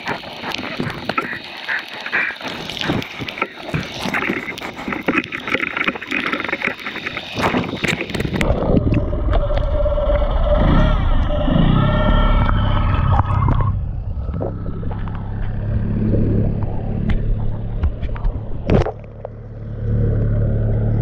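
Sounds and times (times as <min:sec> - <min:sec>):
underwater crackling clicks: 0:00.0 - 0:09.7, 0:14.2 - 0:19.4
outboard motor underwater: 0:00.0 - 0:21.0.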